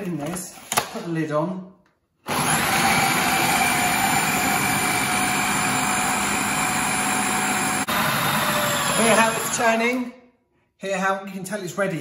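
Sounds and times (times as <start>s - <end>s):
food processor motor whirring: 2.3s - 9.9s.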